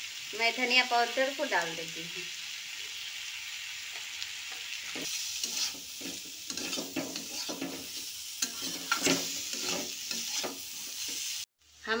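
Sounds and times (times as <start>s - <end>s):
vegetables sizzling in a pan: 0.0s - 12.0s
spatula scraping and knocking pan: 4.5s - 11.4s.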